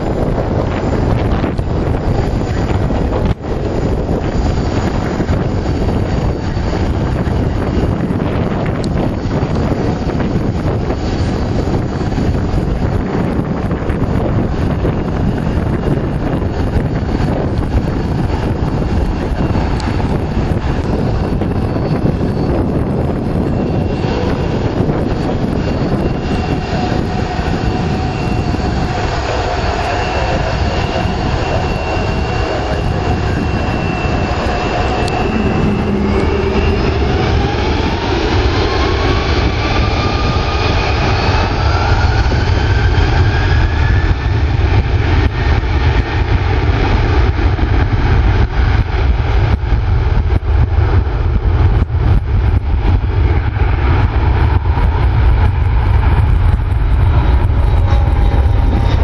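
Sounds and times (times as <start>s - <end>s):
jet engines running: 0.0s - 59.0s
rising engine whine: 0.0s - 59.0s
wind rumble on microphone: 0.0s - 59.0s.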